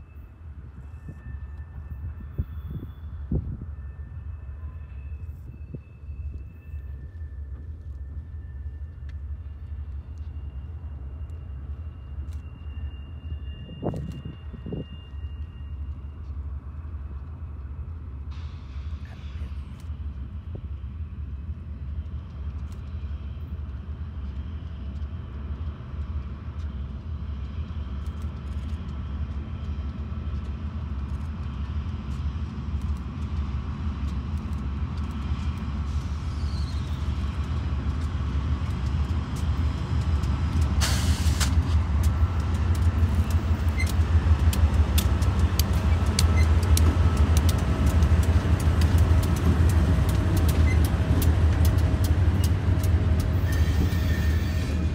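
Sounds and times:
diesel locomotive engine rumbling: 0.0 - 54.9
wheels clicking over rail joints: 36.6 - 54.9
short hiss: 40.8 - 41.6.

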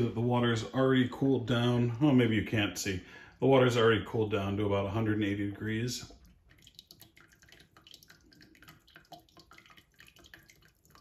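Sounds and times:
coffee dripping and trickling: 5.2 - 11.0.

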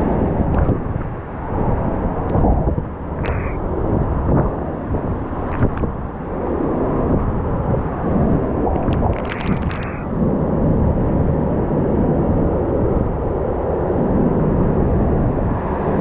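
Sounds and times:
strong gusting wind: 0.0 - 16.0
wind buffeting microphone: 0.0 - 16.0.

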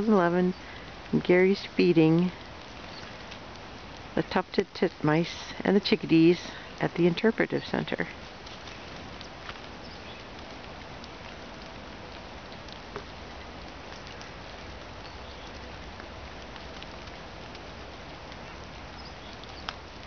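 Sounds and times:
woodland ambience hiss: 0.0 - 20.0
faint soft ticks: 8.4 - 20.0.

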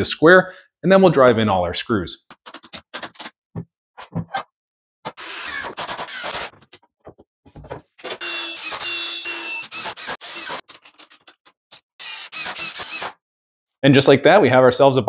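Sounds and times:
cordless drill driving screws: 5.2 - 6.5, 8.1 - 13.2.

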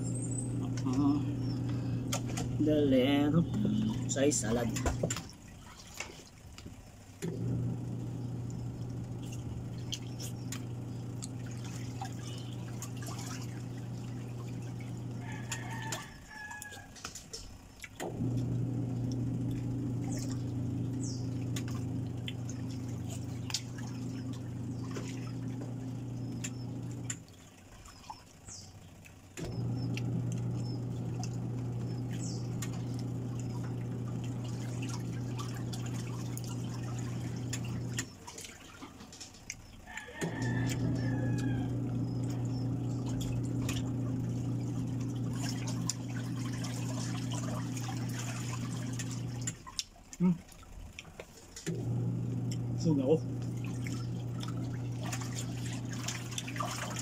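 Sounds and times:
birds chirping: 0.0 - 4.9, 8.0 - 15.8, 19.0 - 38.7, 40.4 - 49.4
steady mechanical hum: 0.0 - 57.0.

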